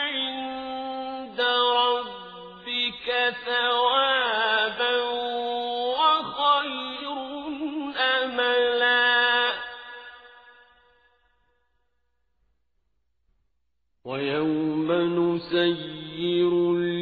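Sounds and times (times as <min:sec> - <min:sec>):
man chanting recitation: 0:00.0 - 0:09.6, 0:14.1 - 0:17.0.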